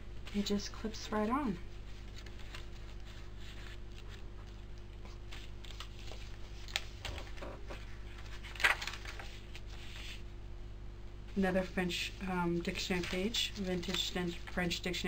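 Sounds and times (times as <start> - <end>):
paper pages rustling: 1.7 - 10.2, 12.7 - 15.0.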